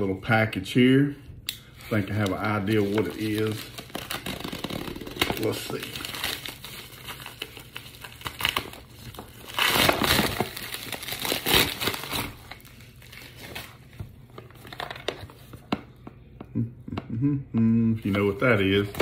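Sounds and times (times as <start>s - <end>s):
plastic mailer crinkling: 1.9s - 15.6s.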